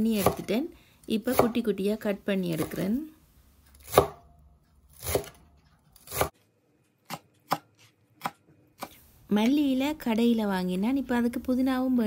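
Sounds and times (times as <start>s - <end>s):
cleaver chopping on wooden board: 3.8s - 4.3s.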